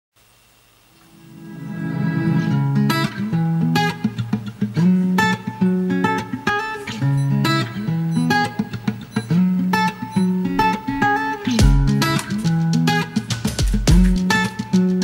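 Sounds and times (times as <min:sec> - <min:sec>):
plucked instrumental music: 0:01.0 - 0:15.0.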